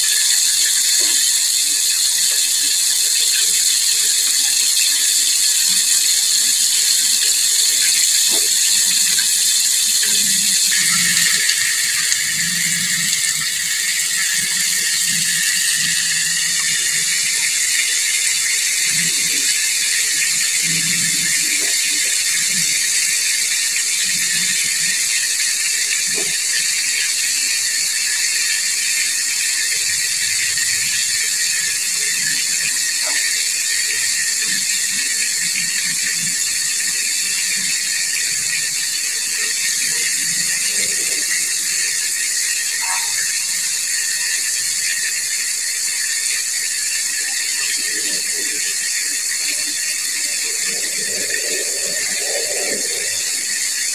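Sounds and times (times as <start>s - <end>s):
oil sizzling: 0.0s - 20.6s, 44.9s - 53.9s.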